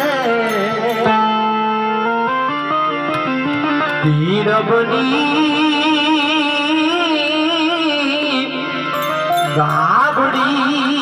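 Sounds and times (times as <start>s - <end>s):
person singing folk song: 0.0s - 1.4s, 3.8s - 11.0s.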